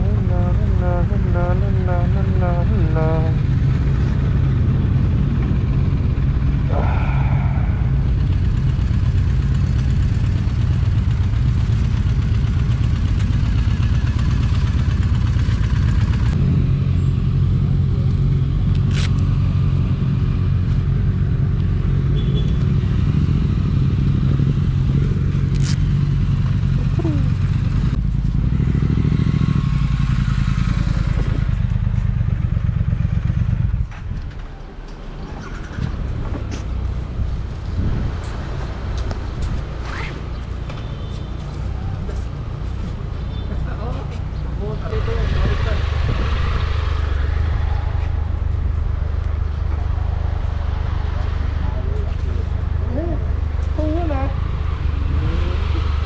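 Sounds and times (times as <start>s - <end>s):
motorcycle engine idling: 0.0s - 18.7s, 19.3s - 34.6s.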